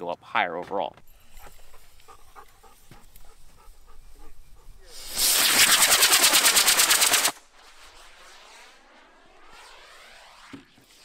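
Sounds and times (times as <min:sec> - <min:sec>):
rocket motor hissing: 0:04.8 - 0:11.0.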